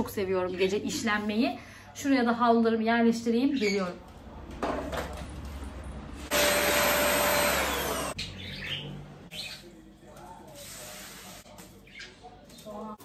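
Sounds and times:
appliance motor whining: 0:06.2 - 0:08.2.

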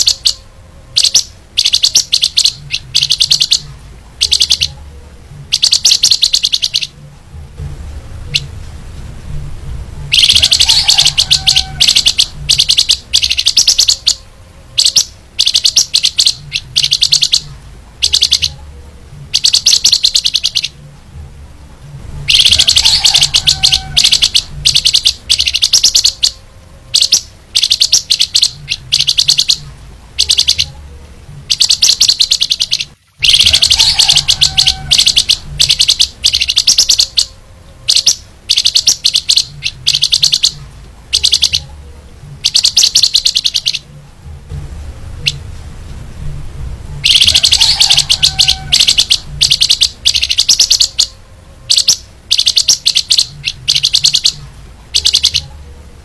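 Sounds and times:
songbird chattering trills: 0:00.0 - 0:00.4, 0:01.0 - 0:04.8, 0:05.5 - 0:07.0, 0:10.1 - 0:18.6, 0:19.3 - 0:20.8, 0:22.3 - 0:29.6, 0:30.2 - 0:30.8, 0:31.5 - 0:41.7, 0:42.4 - 0:43.9, 0:47.0 - 0:54.4, 0:55.0 - 0:55.5.

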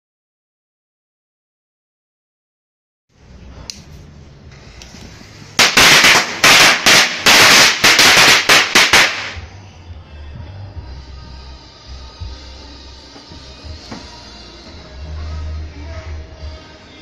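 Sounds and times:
firecracker fuse hissing: 0:04.6 - 0:09.5
firecrackers banging: 0:05.5 - 0:09.6.

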